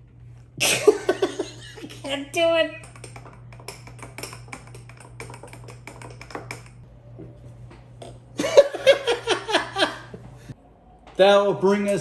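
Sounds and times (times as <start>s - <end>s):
man laughing loudly: 0.6s - 1.8s, 8.4s - 10.1s.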